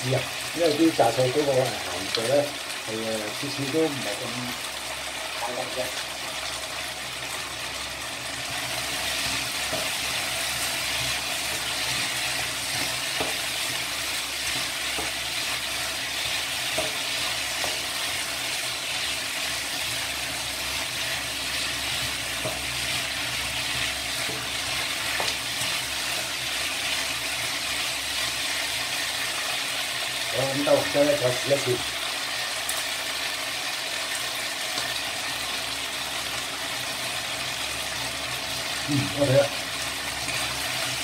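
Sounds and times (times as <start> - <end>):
food sizzling in a wok: 0.0 - 41.0
spatula scraping a pan: 8.5 - 20.1.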